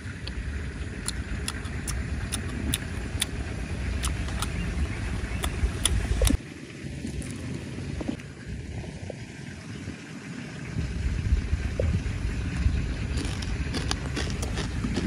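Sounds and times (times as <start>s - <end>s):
low rumble: 0.0s - 15.0s
crispy chicken crunching: 13.1s - 15.0s.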